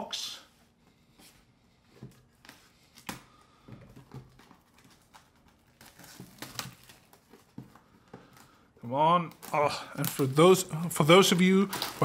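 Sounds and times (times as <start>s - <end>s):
plastic wrap crinkling: 4.2s - 12.0s.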